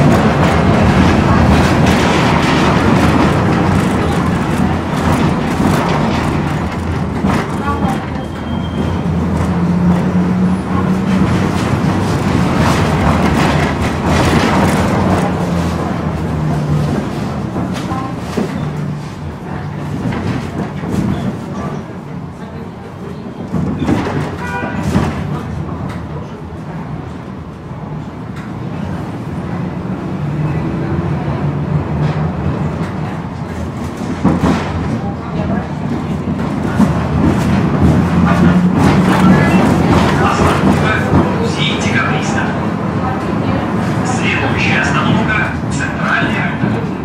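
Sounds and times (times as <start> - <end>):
knocks and rattles: 0.0 - 8.2, 11.0 - 18.6
tram electric hum: 0.0 - 47.0
wheels rumbling on rails: 0.0 - 47.0.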